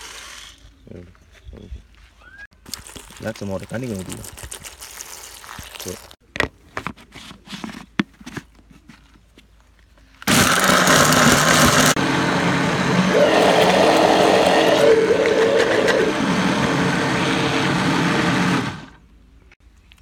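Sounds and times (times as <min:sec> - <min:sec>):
blender motor grinding: 0:10.3 - 0:19.0.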